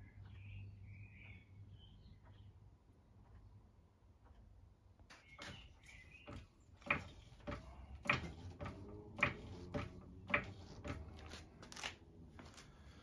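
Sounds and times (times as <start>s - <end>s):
trolley jack pumping clacks: 6.3s - 11.3s.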